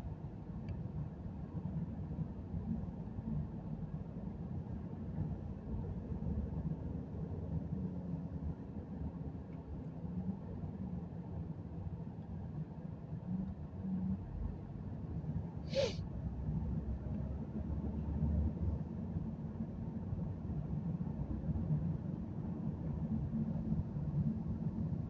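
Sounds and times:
breathy hissing sound: 15.7 - 16.0.

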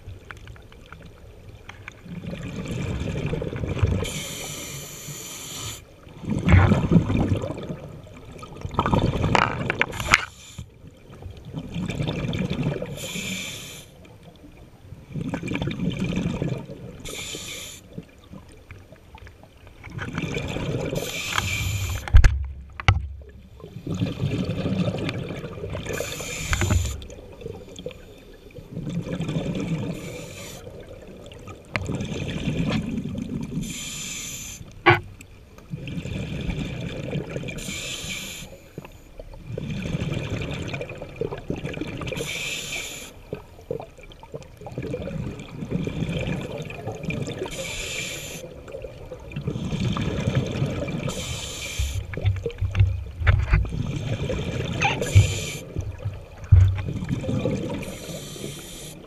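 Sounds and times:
exhaled bubbles rumbling: 2.0 - 4.2, 6.1 - 10.2, 10.8 - 13.0, 14.8 - 17.1, 17.9 - 33.7, 35.6 - 37.6, 39.2 - 42.2, 43.3 - 47.6, 48.5 - 58.3
hissing regulator inhale: 4.0 - 5.9, 10.0 - 10.8, 12.9 - 14.0, 17.0 - 17.9, 21.0 - 22.1, 25.9 - 27.1, 29.9 - 30.7, 33.6 - 34.8, 37.6 - 39.0, 42.2 - 43.2, 47.5 - 48.5, 51.1 - 52.2, 54.0 - 55.8, 57.8 - 59.0.

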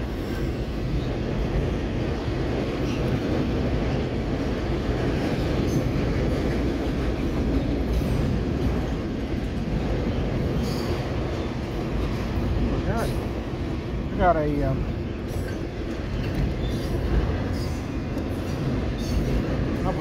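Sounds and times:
freight train wheels rumbling: 0.0 - 20.0.

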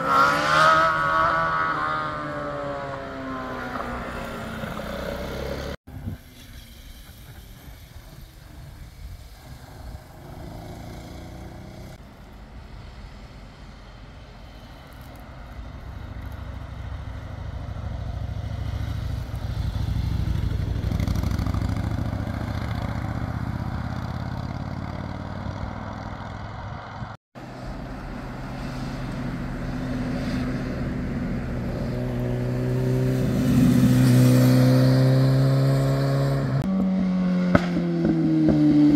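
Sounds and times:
motorcycle engine revving: 0.0 - 5.8, 9.4 - 12.0, 16.1 - 27.1, 28.1 - 38.9
motorcycle engines passing: 0.0 - 38.9.

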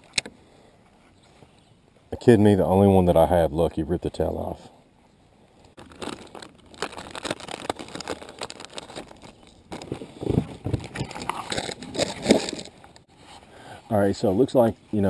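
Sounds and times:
plastic package crinkling: 5.8 - 12.8.

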